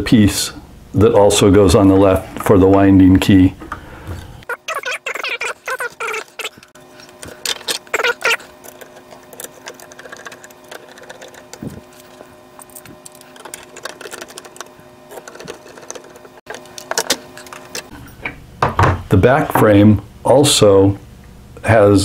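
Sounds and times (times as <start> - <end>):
plastic parts clicking and rattling: 6.1 - 17.9.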